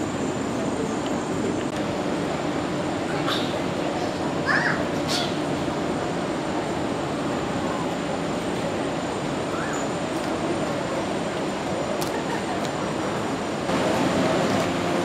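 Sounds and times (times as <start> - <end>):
distant indistinct voices: 0.0 - 15.0.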